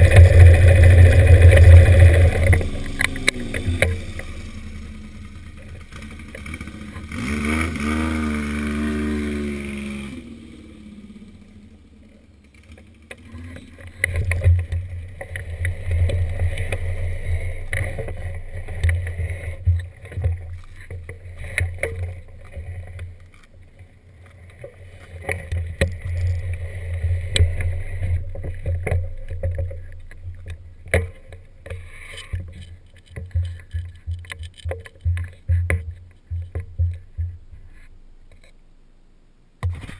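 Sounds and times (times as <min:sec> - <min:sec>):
scattered clicks: 0:00.0 - 0:04.6, 0:12.4 - 0:38.6
motorcycle engine revving: 0:00.0 - 0:23.5, 0:24.9 - 0:37.9.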